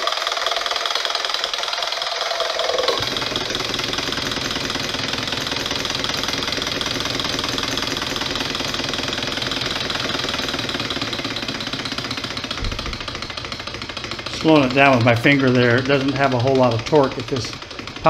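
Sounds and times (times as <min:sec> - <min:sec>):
motor driver whine: 0:00.0 - 0:18.0
solenoid engine clattering: 0:00.0 - 0:18.0.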